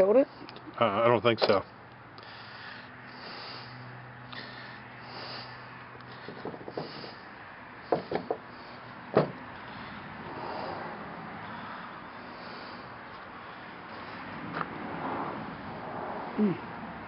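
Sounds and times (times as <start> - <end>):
handling taps and knocks: 6.2 - 7.2, 7.9 - 8.5, 9.1 - 9.4.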